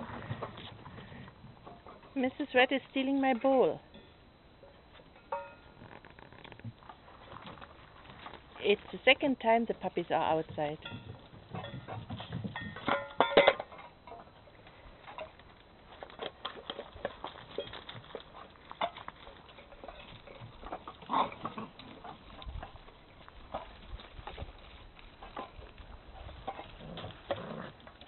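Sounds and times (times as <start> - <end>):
paws scuffing on gravel: 15.0 - 27.8.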